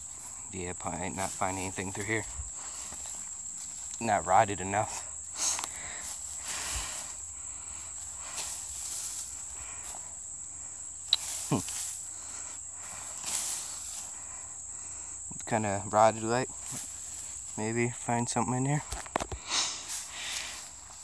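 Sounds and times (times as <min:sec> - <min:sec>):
rake rustling dry grass: 0:00.0 - 0:10.2, 0:11.0 - 0:14.2, 0:16.5 - 0:17.6, 0:18.8 - 0:21.0
high insect trill: 0:00.0 - 0:21.0.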